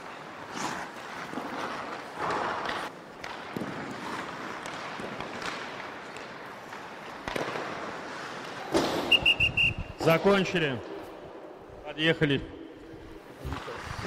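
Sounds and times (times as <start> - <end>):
skates scraping on ice: 0.0 - 11.1, 13.0 - 14.0
stick and puck knocks: 2.2 - 9.1.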